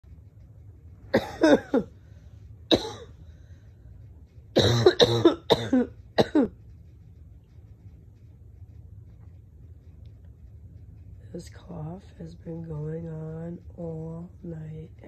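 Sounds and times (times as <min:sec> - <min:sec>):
person coughing hard: 0:01.1 - 0:01.9, 0:02.7 - 0:03.1, 0:04.6 - 0:06.5.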